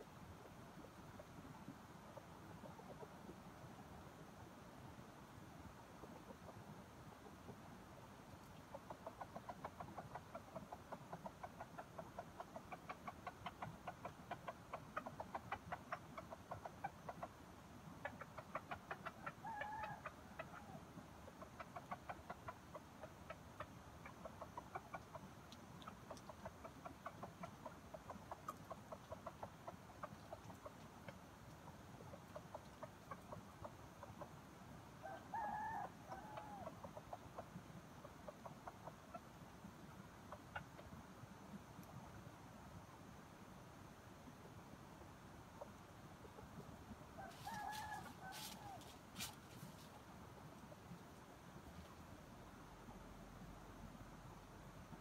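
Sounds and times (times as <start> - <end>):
junglefowl clucking: 8.4 - 34.4, 35.0 - 41.0, 45.6 - 50.0.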